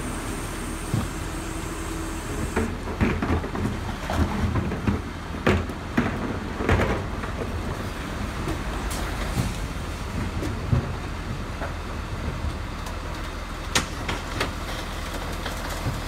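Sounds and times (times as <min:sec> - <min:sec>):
garbage truck engine running: 0:00.0 - 0:16.0.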